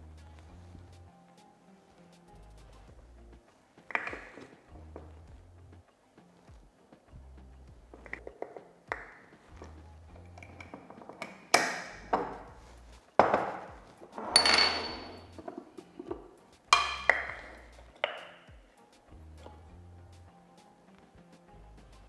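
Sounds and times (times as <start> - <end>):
scoop clinking against glass: 14.3 - 15.3.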